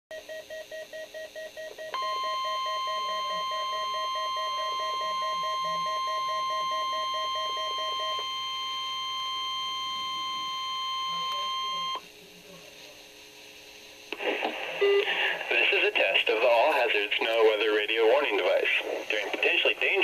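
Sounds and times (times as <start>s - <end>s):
warning alarm tone: 2.0s - 12.0s
weather radio rapid beeps: 2.0s - 12.0s, 14.2s - 16.2s.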